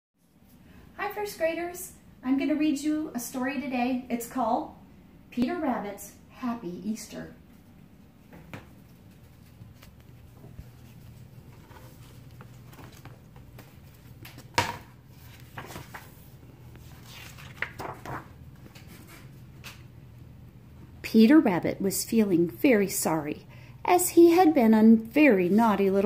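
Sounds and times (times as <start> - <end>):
book pages turning: 8.6 - 19.9.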